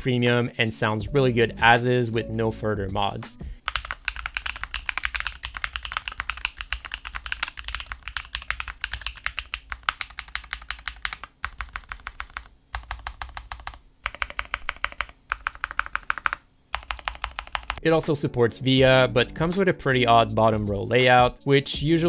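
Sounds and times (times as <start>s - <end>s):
mechanical keyboard typing: 3.6s - 17.8s.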